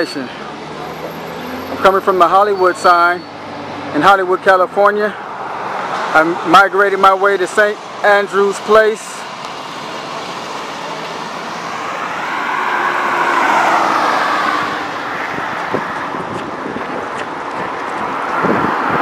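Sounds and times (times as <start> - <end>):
car passing: 0.0 - 19.0
wind on microphone: 14.6 - 19.0.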